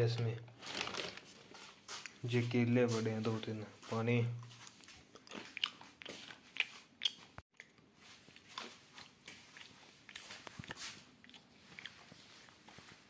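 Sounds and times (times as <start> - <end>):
chewing food: 4.4 - 13.0.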